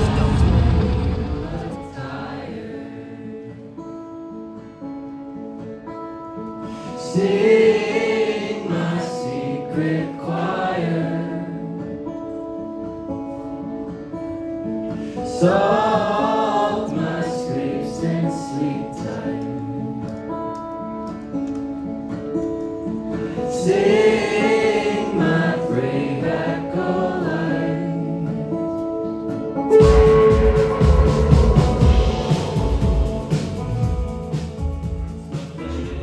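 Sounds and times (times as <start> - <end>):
rock band keyboard and guitar: 0.0 - 1.8, 28.1 - 36.0
person singing: 29.6 - 34.6.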